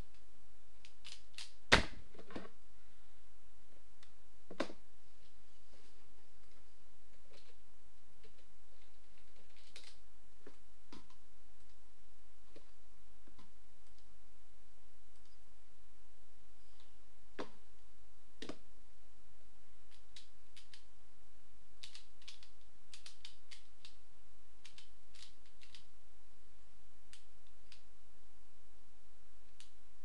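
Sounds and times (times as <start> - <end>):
plastic puzzle clicking: 8.2 - 10.0, 21.8 - 24.0, 24.6 - 25.9.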